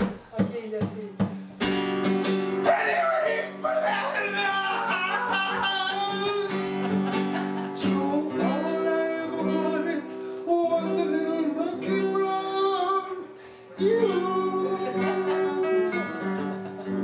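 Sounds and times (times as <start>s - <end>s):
strummed acoustic guitar: 0.0s - 17.0s
person singing: 2.7s - 6.9s, 7.8s - 16.4s.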